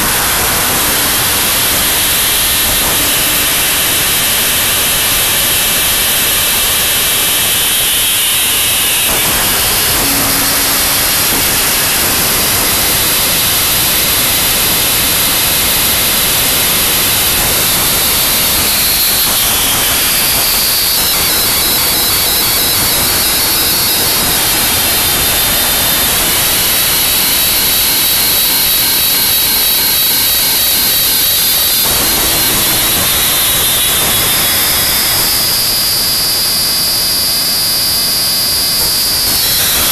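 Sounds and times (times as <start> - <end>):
distorted static noise music: 0.0 - 35.2.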